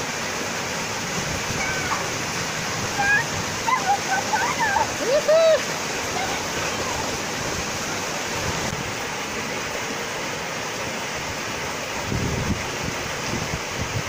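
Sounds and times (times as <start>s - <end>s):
small waterfall rushing: 0.0s - 14.0s
wind rumble on microphone: 12.0s - 14.0s.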